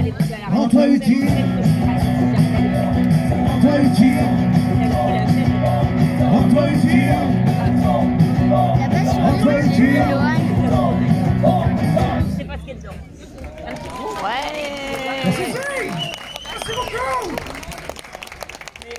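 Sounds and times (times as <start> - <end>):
person singing: 0.0 - 12.4
acoustic guitars strumming: 0.1 - 12.6.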